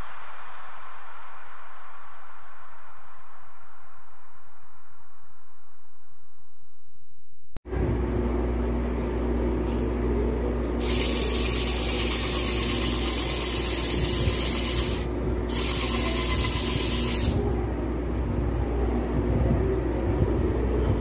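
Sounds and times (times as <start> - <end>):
steady low hum: 0.0 - 21.0
small electric motor whirring: 10.8 - 17.4.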